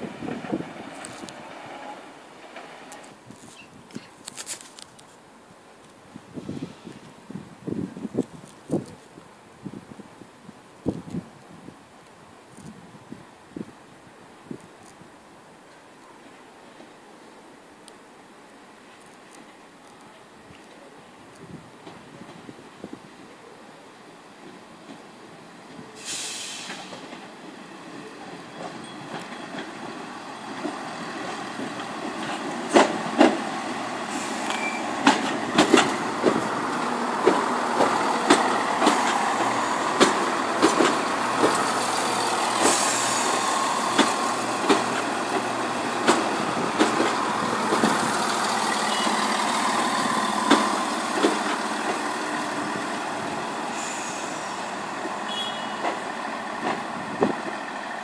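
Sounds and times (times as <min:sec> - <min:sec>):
diesel train engines humming: 0:00.0 - 0:03.2, 0:23.9 - 0:58.0
train wheels clacking over rail joints: 0:00.0 - 0:03.2, 0:26.2 - 0:58.0.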